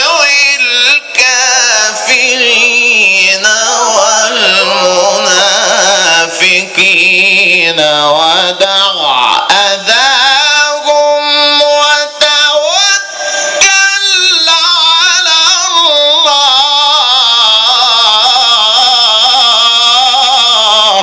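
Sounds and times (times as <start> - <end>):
man chanting into a microphone: 0.0 - 21.0.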